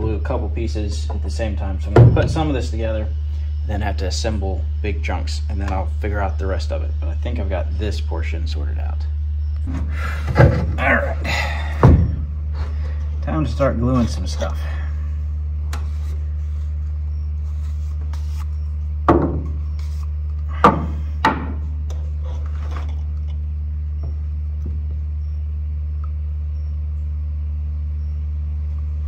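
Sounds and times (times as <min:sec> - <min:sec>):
steady low hum: 0:00.0 - 0:29.0
sharp hollow knocks: 0:01.9 - 0:02.4, 0:11.8 - 0:12.3, 0:19.1 - 0:19.6, 0:20.6 - 0:21.6.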